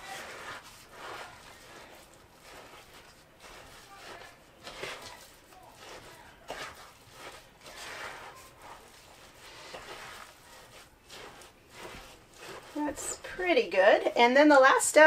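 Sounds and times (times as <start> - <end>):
spoon scraping through dough: 0.0 - 15.0.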